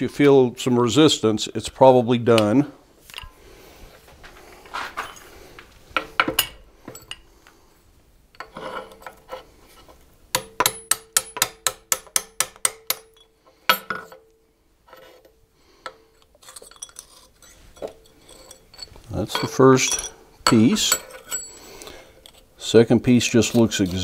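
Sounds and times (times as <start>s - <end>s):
handling of metal: 4.5s - 7.3s, 8.3s - 11.4s, 12.9s - 24.0s
sharp ringing metal taps: 10.4s - 14.3s
metal parts clinking: 16.2s - 22.5s.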